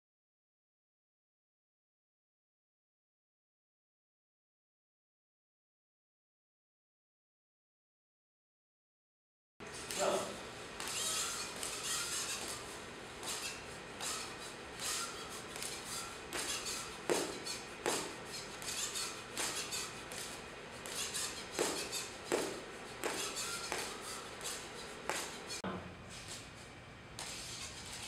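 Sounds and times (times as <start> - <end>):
robot leg clicking and knocking: 16.4 - 18.1.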